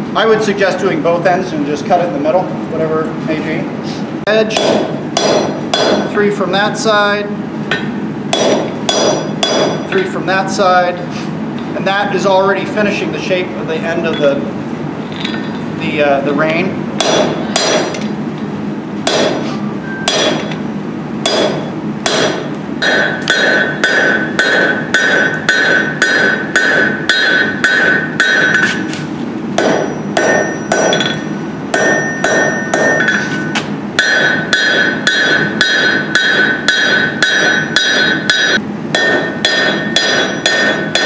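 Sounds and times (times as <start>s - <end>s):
hammer clanging on anvil: 4.5s - 6.1s, 7.7s - 10.1s, 20.0s - 20.6s, 21.3s - 28.9s, 29.6s - 41.0s.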